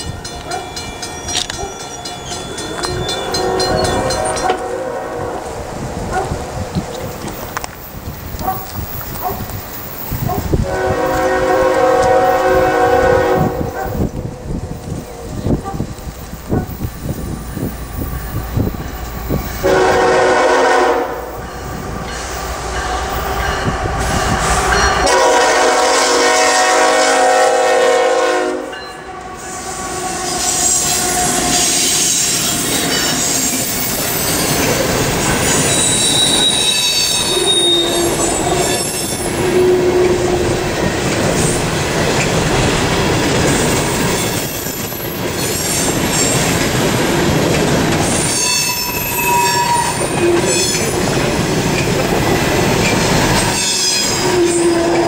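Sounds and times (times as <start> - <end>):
train wheels clickety-clack: 0.0 - 4.7, 6.1 - 19.8, 30.3 - 55.0
train cars rumbling: 0.0 - 55.0
high wheel squeal: 0.5 - 4.6, 29.4 - 40.1, 48.0 - 51.0, 52.5 - 55.0
locomotive air horn blasts: 2.9 - 5.6, 10.6 - 14.1, 19.6 - 21.4, 24.1 - 32.2, 35.7 - 40.5, 48.4 - 50.8, 53.6 - 55.0.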